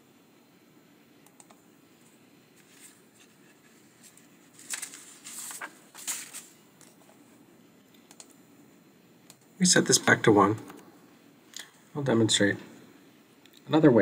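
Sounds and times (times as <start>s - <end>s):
computer mouse clicks: 1.2s - 1.6s, 7.9s - 8.4s, 9.2s - 9.5s.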